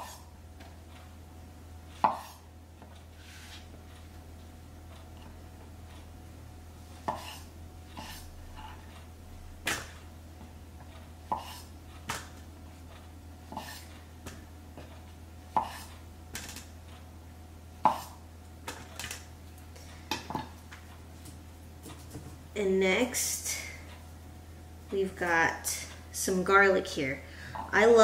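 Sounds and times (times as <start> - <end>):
low steady hum: 0.0 - 28.0
knife chopping on wooden board: 2.0 - 2.4, 7.0 - 8.2, 15.6 - 15.9, 17.8 - 18.2.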